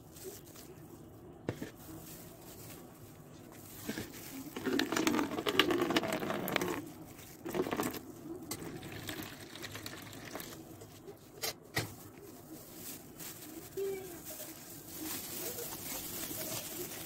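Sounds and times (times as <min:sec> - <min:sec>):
water pouring into plastic basin: 0:04.5 - 0:10.6.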